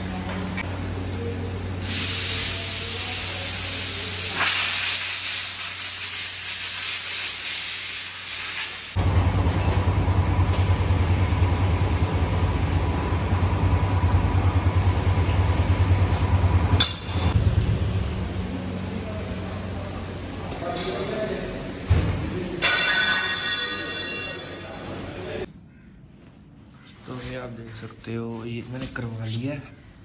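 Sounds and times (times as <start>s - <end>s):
low throbbing mechanical hum: 0.0s - 4.3s, 9.0s - 26.0s
loud steady hiss: 1.7s - 9.0s, 17.4s - 22.6s.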